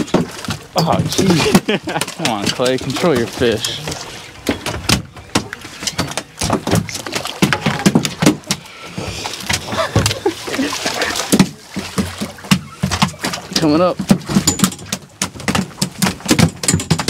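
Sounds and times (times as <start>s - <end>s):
fish splashing at surface: 0.0s - 16.6s
sharp knocks: 11.2s - 17.0s.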